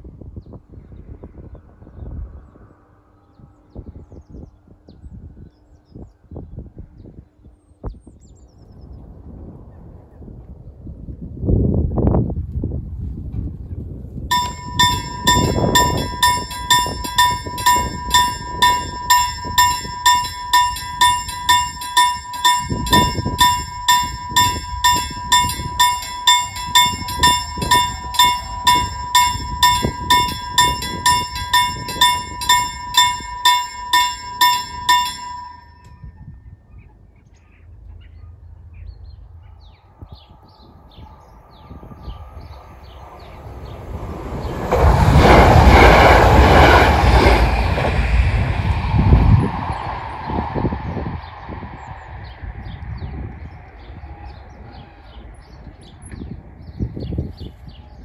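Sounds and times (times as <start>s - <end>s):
level crossing warning bell: 14.3s - 36.0s, 44.5s - 48.0s.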